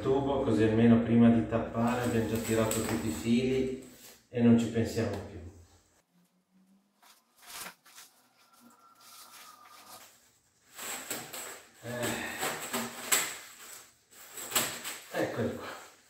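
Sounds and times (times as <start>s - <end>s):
plastic conduit rustling and scraping: 1.8s - 4.2s, 6.9s - 16.0s.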